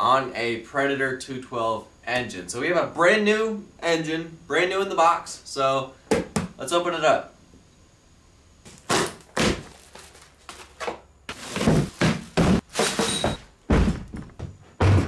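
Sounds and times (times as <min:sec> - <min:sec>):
plastic wrapping rustling: 0:08.7 - 0:13.4
cardboard box flaps rustling: 0:09.4 - 0:13.4
thuds of handling: 0:10.5 - 0:15.0.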